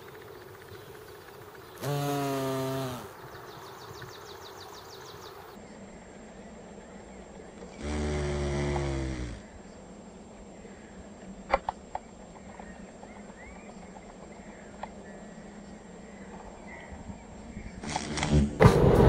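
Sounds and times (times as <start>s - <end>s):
bee buzzing: 1.7s - 3.6s, 7.8s - 9.4s.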